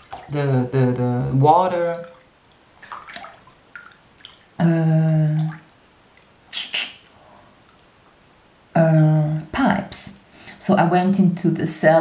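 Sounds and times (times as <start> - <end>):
soft mouth clicks: 6.5 - 7.4.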